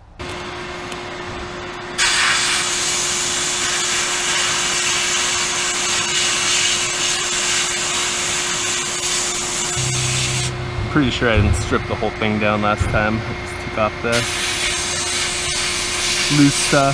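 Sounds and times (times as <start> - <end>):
sandblasting gun hiss: 2.0 - 10.5, 14.1 - 16.9
steady tonal hum: 9.4 - 16.9.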